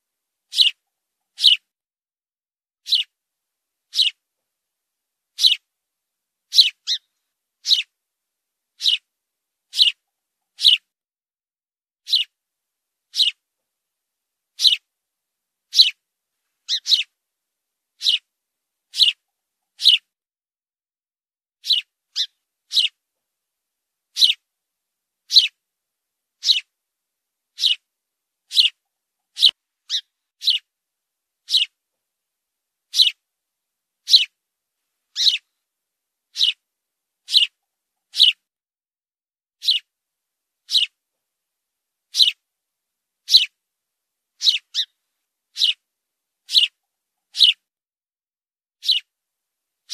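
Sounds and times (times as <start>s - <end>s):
sparrow chirping: 0.5s - 1.7s, 2.8s - 3.2s, 3.9s - 4.2s, 5.4s - 5.7s, 6.5s - 7.9s, 8.8s - 9.1s, 9.7s - 10.9s, 12.0s - 12.4s, 13.1s - 13.4s, 14.5s - 14.9s, 15.7s - 16.0s, 16.6s - 17.2s, 18.0s - 18.3s, 18.9s - 20.1s, 21.6s - 23.0s, 24.1s - 24.4s, 25.3s - 25.6s, 26.4s - 26.7s, 27.5s - 27.9s, 28.5s - 30.7s, 31.4s - 31.8s, 32.9s - 33.2s, 34.0s - 34.4s, 35.1s - 35.5s, 36.3s - 36.6s, 37.2s - 38.4s, 39.6s - 39.9s, 40.6s - 41.0s, 42.1s - 42.4s, 43.2s - 43.6s, 44.4s - 45.8s, 46.4s - 47.6s, 48.8s - 49.1s.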